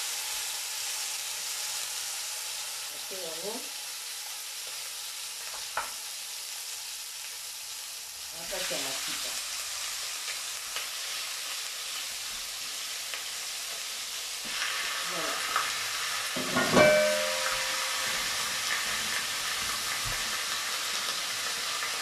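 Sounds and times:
chicken sizzling in frying pan: 0.0 - 22.0
metallic clank: 16.4 - 18.5.

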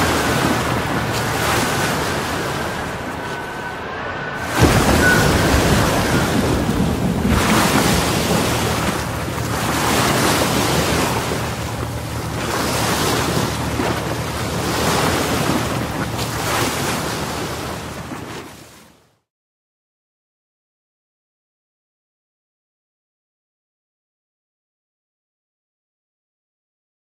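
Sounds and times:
rushing surf: 0.0 - 18.7
wind buffeting microphone: 0.0 - 18.7.

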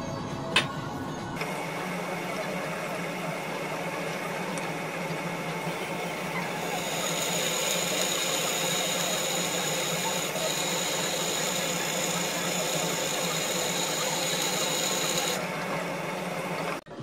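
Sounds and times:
drill press cutting steel: 6.4 - 15.5.

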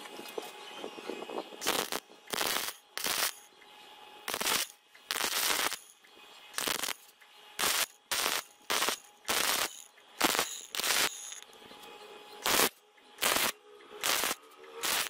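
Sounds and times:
welder arc crackling: 1.6 - 3.6, 4.2 - 11.6, 12.4 - 15.0.

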